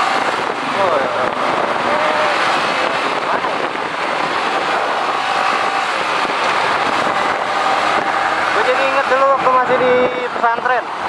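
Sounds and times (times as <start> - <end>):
motorcycle road noise: 0.0 - 11.0
wind rush on microphone: 0.0 - 11.0.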